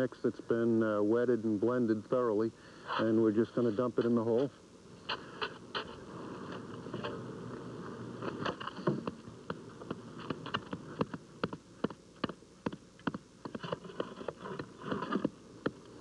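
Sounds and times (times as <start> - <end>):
hand tamper knocking asphalt: 9.0 - 15.8.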